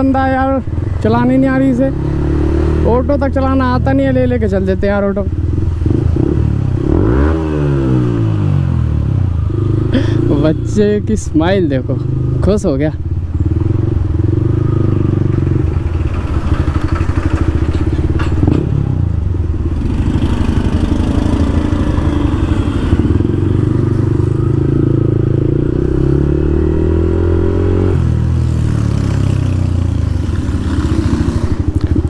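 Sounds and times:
motorcycle engine running: 8.0s - 32.0s.

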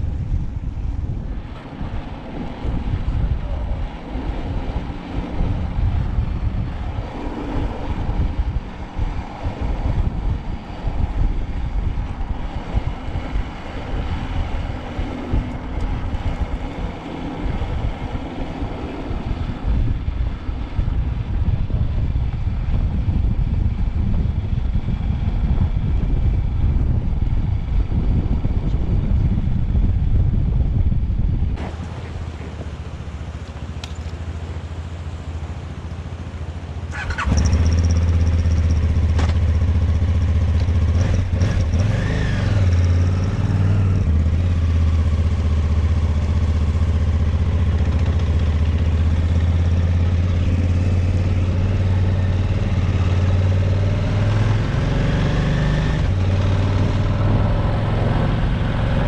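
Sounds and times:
wind buffeting microphone: 0.0s - 59.0s
motorcycle engine: 31.5s - 59.0s
motorcycle idling: 44.1s - 53.2s.

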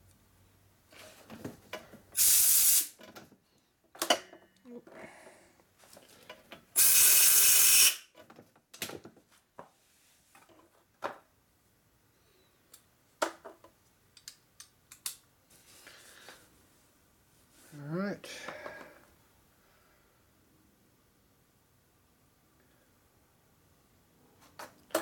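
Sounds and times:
loud steady hiss: 2.1s - 3.0s, 6.8s - 8.1s
light metal clicks and taps: 14.1s - 15.2s.

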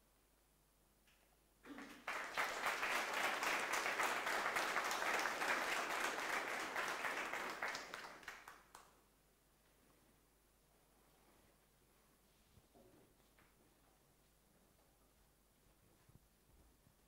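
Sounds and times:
audience applauding: 1.7s - 8.9s.

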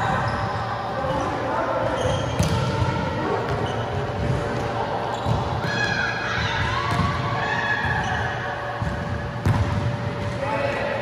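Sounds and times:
volleyball hits: 1.8s - 10.3s.

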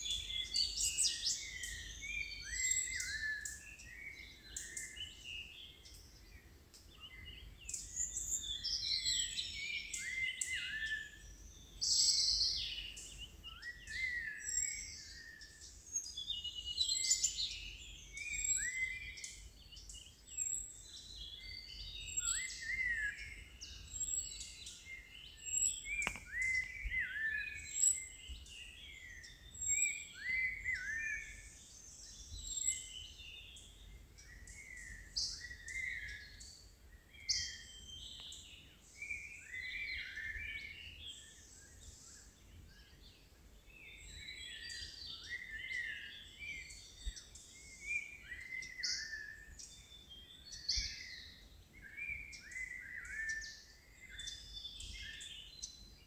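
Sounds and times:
birds chirping and whistling: 0.0s - 56.0s
sharp click: 26.0s - 26.6s.

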